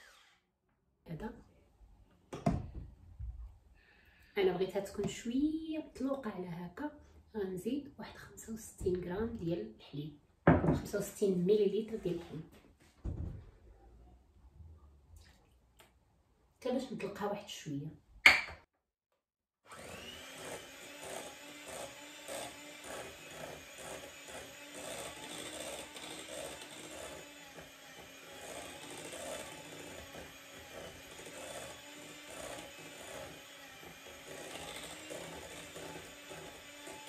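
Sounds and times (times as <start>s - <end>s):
electric hand mixer running: 19.7s - 37.0s.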